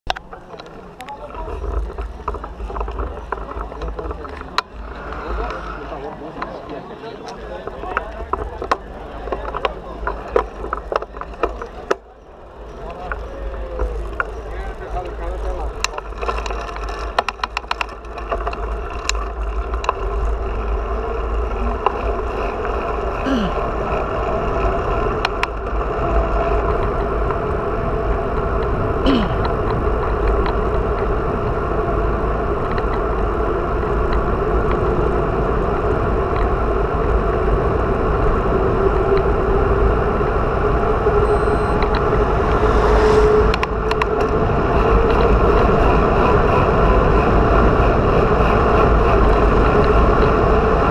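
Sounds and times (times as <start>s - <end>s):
bicycle tyres on asphalt: 0.1s - 50.9s
wind on microphone: 15.6s - 50.9s.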